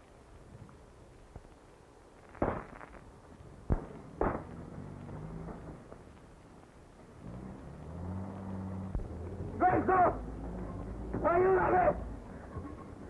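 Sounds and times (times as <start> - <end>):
gunshots: 2.3 - 3.1, 3.7 - 4.7
truck engine running: 3.9 - 13.0.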